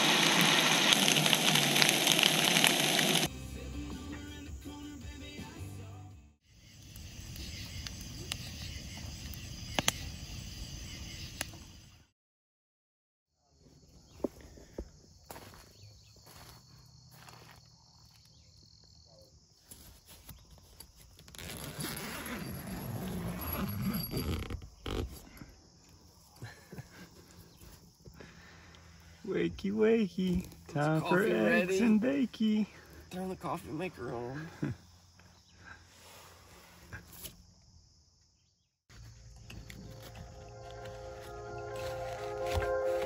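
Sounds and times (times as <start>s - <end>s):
campfire crackling and popping: 0.0s - 3.3s
tent zipper opening: 0.0s - 3.3s, 20.8s - 25.4s.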